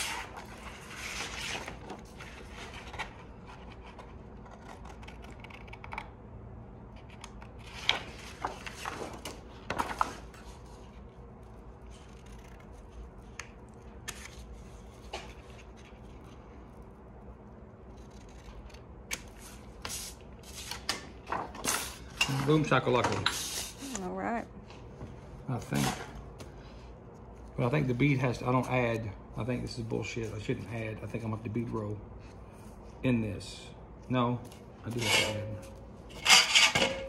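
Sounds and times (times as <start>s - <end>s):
paper rustling on steel table: 7.6s - 11.0s.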